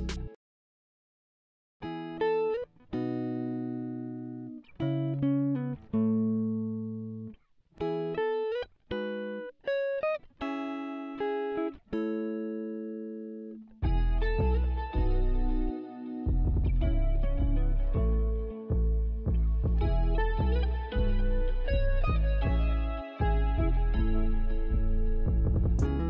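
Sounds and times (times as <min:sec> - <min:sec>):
plucked-string instrumental melody: 0:13.8 - 0:26.0.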